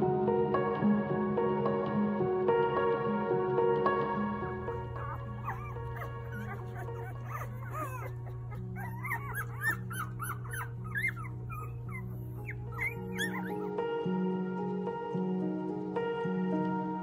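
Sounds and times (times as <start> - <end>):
soft background music: 0.0 - 17.0
puppies squeaking and whimpering: 4.6 - 13.8.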